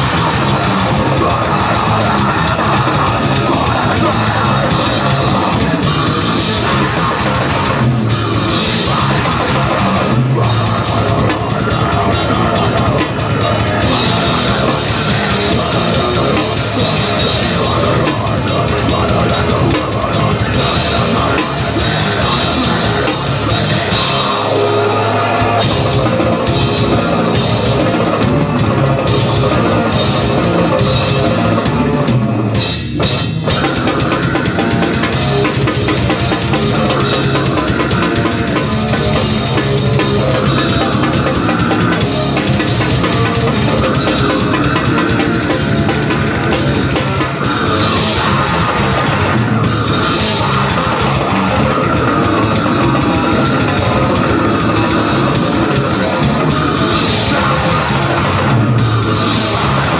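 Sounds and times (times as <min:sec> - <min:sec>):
distorted bass and guitar: 0:00.0 - 0:59.9
drum kit: 0:00.0 - 0:59.9
grindcore band playing live: 0:00.0 - 0:59.9.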